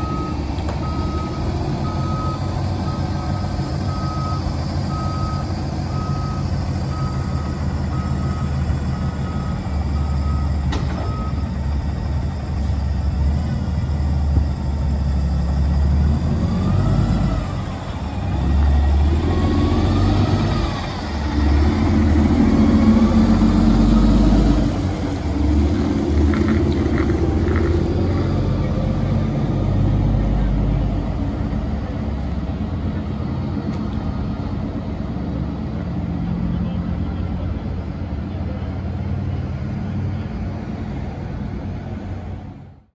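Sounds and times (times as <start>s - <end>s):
reversing alarm beeping: 0.0s - 17.7s
diesel engine running: 0.0s - 42.9s.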